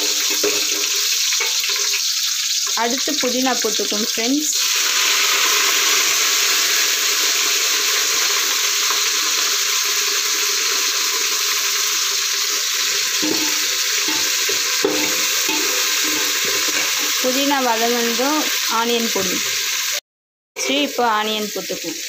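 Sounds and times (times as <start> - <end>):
leaves sizzling in hot oil: 0.0 - 20.0, 20.6 - 22.0
metal spoon scraping a pot: 13.0 - 17.2.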